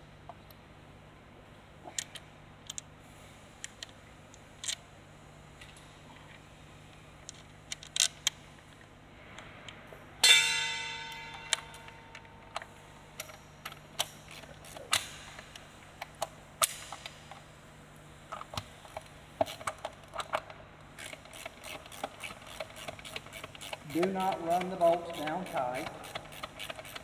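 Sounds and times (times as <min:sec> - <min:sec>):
sharp metallic clang: 0:10.2 - 0:12.4.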